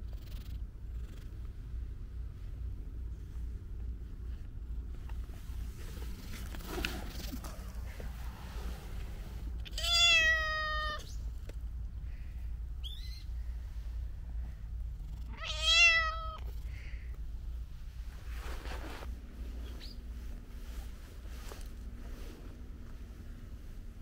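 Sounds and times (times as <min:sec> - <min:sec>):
cat meowing: 0:09.6 - 0:11.2, 0:15.3 - 0:16.5.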